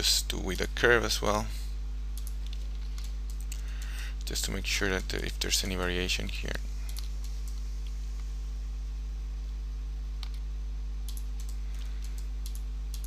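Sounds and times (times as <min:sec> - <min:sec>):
steady low hum: 0:00.0 - 0:13.0
computer mouse clicking: 0:02.2 - 0:03.6, 0:10.2 - 0:10.4, 0:11.1 - 0:13.0.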